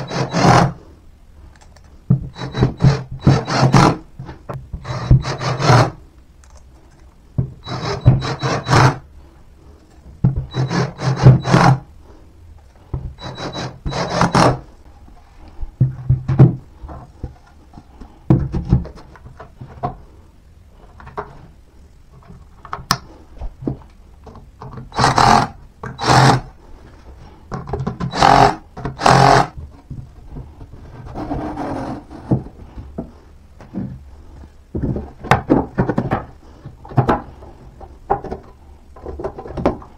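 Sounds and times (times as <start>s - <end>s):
drill driving screws: 0.0s - 0.8s, 2.4s - 4.0s, 4.8s - 6.0s, 7.6s - 9.0s, 10.5s - 11.8s, 13.2s - 14.6s, 24.9s - 26.5s, 28.1s - 29.5s
panels rubbing and scraping: 30.3s - 34.0s.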